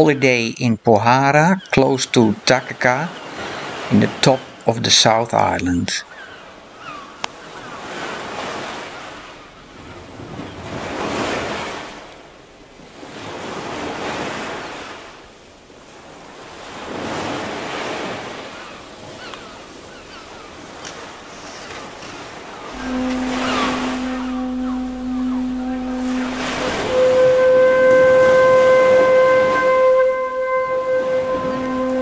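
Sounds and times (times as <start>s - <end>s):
surf breaking on beach: 21.8s - 32.0s.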